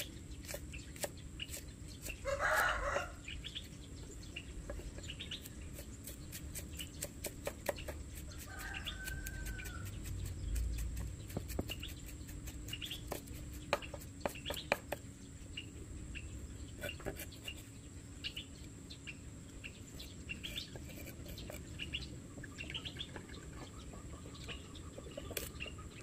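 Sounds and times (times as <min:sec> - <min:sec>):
chicken calling: 0:02.2 - 0:03.2
knife chopping on wooden board: 0:06.0 - 0:08.5, 0:09.1 - 0:15.0.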